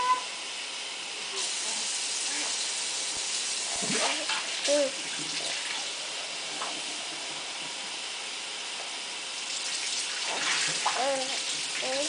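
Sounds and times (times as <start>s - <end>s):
tap water running into sink: 9.4s - 12.0s.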